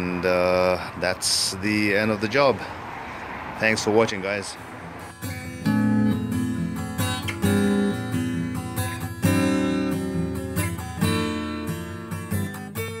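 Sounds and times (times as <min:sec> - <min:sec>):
acoustic guitar strumming: 0:04.6 - 0:13.0.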